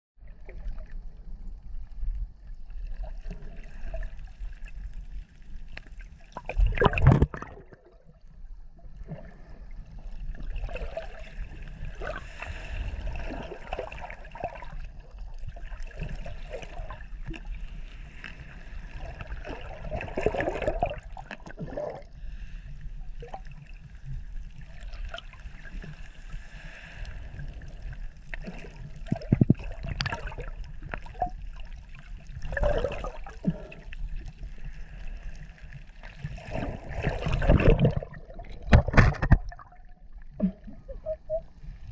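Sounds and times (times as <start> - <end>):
muffled water sloshing: 0.2 - 41.9
water splashing: 36.0 - 41.4.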